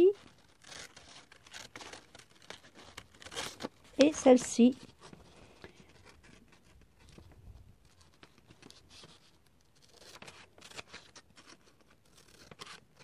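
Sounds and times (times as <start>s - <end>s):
scissors snipping paper: 0.0s - 5.0s, 8.6s - 13.0s
paper rustling: 0.0s - 13.0s.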